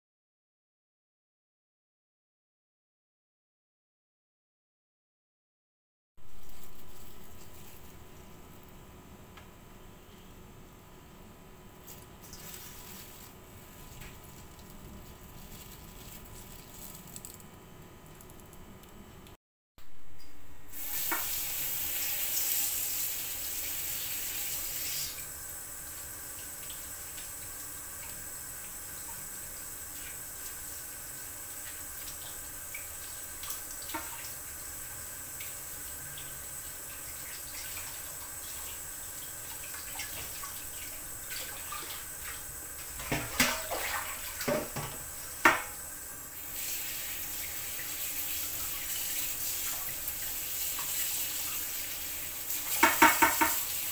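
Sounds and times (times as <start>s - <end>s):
hands rubbing wet leaves: 6.3s - 8.2s, 11.8s - 18.8s
tap water running into steel bowl: 20.8s - 25.2s, 26.3s - 34.5s, 35.3s - 45.8s, 46.5s - 53.9s.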